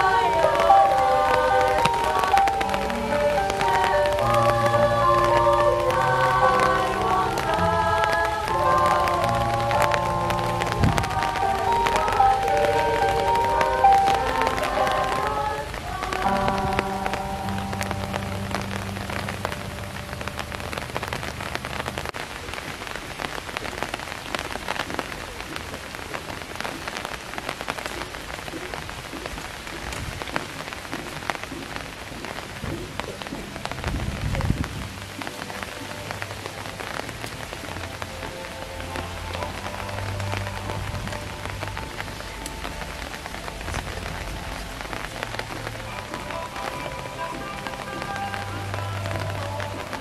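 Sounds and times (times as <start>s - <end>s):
rain pattering: 0.0s - 50.0s
faint music: 31.1s - 50.0s.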